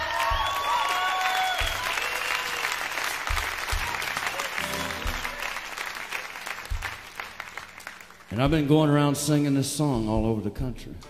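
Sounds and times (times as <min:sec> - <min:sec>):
audience applauding: 0:00.0 - 0:08.8
soft instrumental music: 0:03.8 - 0:05.6.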